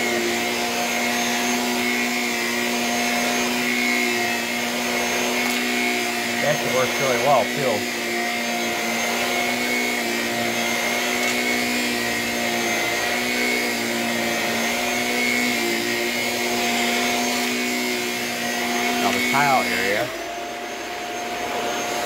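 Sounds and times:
vacuum cleaner motor whine: 0:00.0 - 0:22.0.

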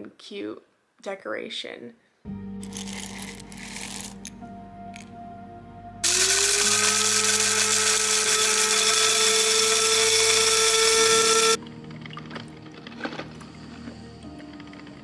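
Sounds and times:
electric coffee grinder grinding: 0:02.6 - 0:04.2, 0:06.0 - 0:11.6.

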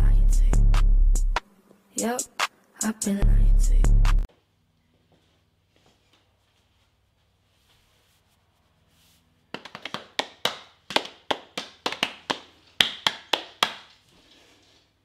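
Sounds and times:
hands slapping a belly: 0:09.5 - 0:13.9.

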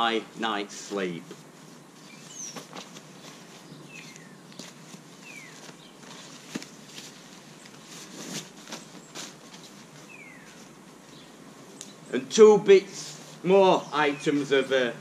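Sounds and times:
outdoor background noise: 0:00.0 - 0:15.0
rustling and light clicks: 0:01.2 - 0:12.0
bird chirping: 0:02.0 - 0:06.8, 0:08.8 - 0:12.3, 0:13.5 - 0:15.0.

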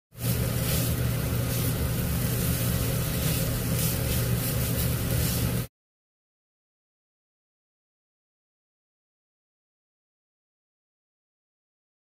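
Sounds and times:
constant hiss: 0:00.2 - 0:05.7
electric motor hum: 0:00.2 - 0:05.7.

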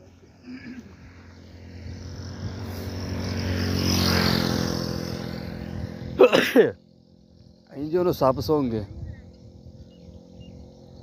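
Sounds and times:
motor vehicle engine passing: 0:00.0 - 0:06.2.

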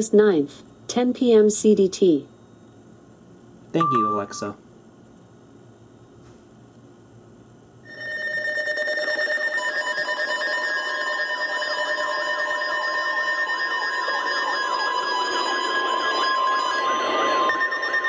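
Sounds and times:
electronic emergency alert alarm: 0:07.9 - 0:18.0.

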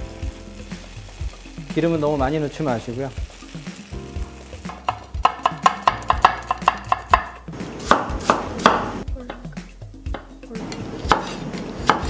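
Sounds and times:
knife chopping on wooden board: 0:04.7 - 0:09.4, 0:10.1 - 0:12.0.

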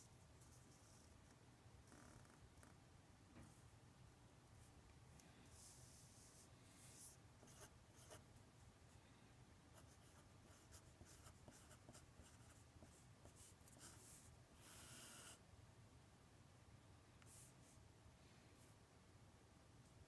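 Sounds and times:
pen scratching on paper: 0:07.0 - 0:08.2, 0:09.8 - 0:15.4.

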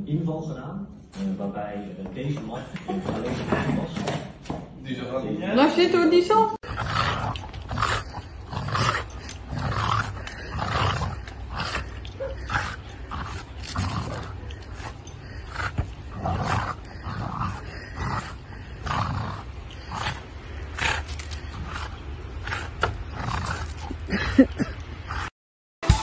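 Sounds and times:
dog growling: 0:06.6 - 0:25.3.

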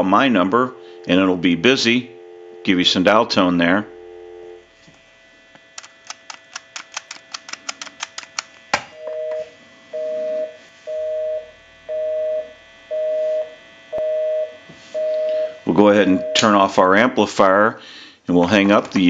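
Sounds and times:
busy signal tone: 0:00.0 - 0:04.6, 0:09.0 - 0:16.5.

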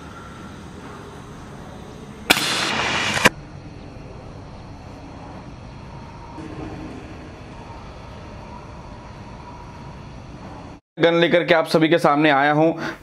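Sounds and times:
air rifle sharp crack: 0:02.3 - 0:03.4
loud rushing noise: 0:02.3 - 0:03.4.

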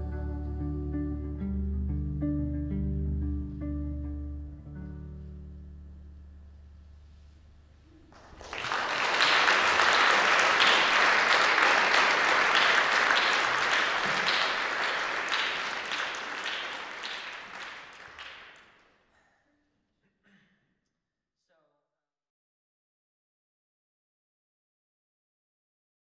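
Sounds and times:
audience applause: 0:08.1 - 0:18.8.

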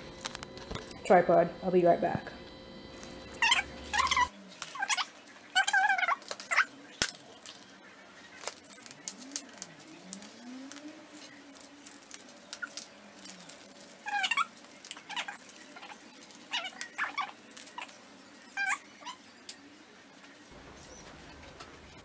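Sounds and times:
plastic film peeling and squeaking: 0:03.0 - 0:22.0
knife cutting plastic film: 0:08.3 - 0:17.9.

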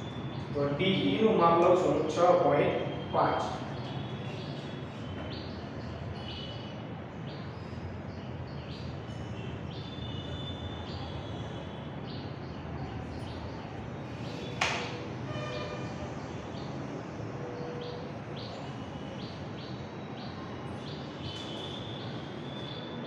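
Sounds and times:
small birds chirping: 0:03.0 - 0:14.6, 0:16.2 - 0:23.0
sharp knock: 0:14.6 - 0:15.0.

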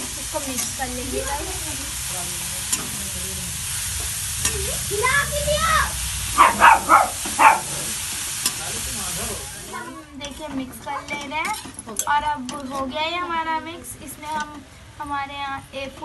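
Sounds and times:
carrots sizzling in fat: 0:00.0 - 0:10.0.

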